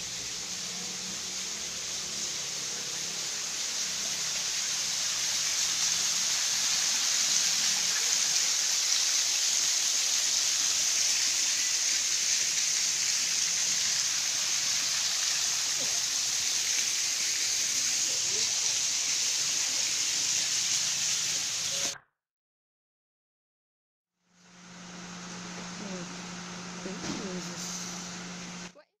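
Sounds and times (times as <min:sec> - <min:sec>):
waterfall splashing: 0:01.4 - 0:21.6.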